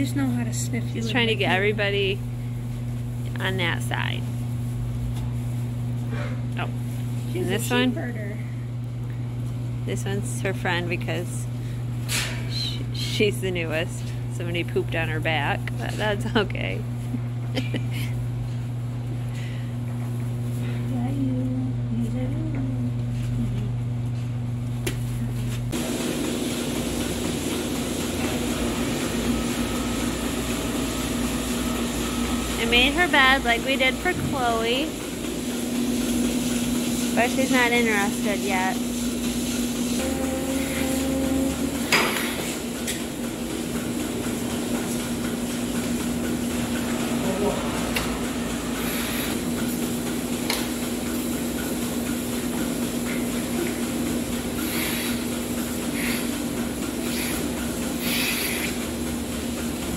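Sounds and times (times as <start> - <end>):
machinery humming: 0.0 - 59.9.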